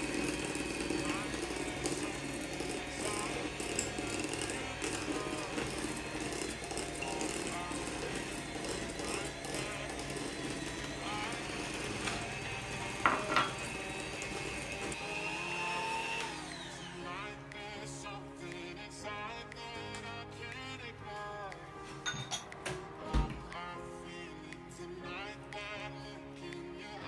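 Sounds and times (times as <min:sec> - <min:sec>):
electric hand mixer whine: 0:00.0 - 0:17.7.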